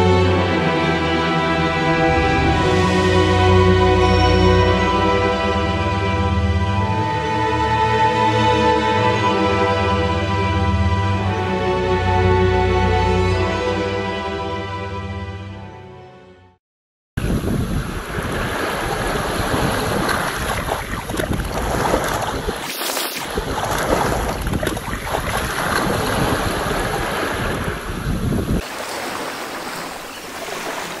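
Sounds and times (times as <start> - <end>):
wind buffeting microphone: 17.2 - 22.6, 23.2 - 28.7
waves washing onto gravel beach: 28.6 - 31.0.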